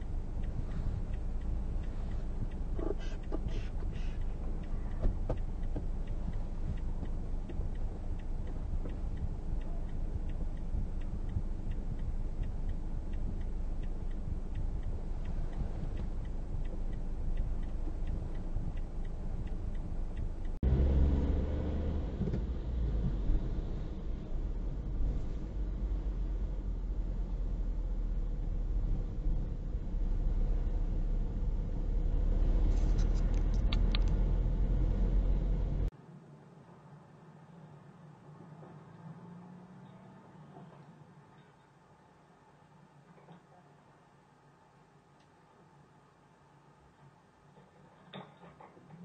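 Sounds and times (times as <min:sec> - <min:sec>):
faint regular ticking: 0:00.0 - 0:20.9
car idling rumble: 0:00.0 - 0:35.9
car road and engine noise: 0:00.0 - 0:49.0.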